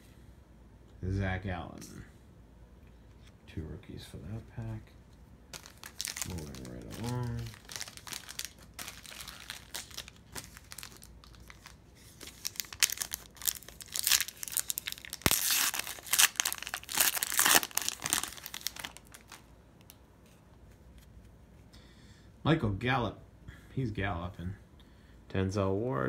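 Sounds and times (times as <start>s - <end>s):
foil wrapper crinkling and tearing: 5.5s - 19.5s.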